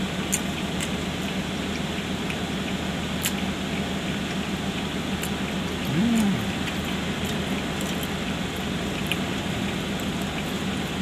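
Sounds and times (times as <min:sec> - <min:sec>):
car idling hum: 0:00.0 - 0:11.0
chewing clicks: 0:00.3 - 0:10.6
person humming mmm: 0:05.8 - 0:06.7.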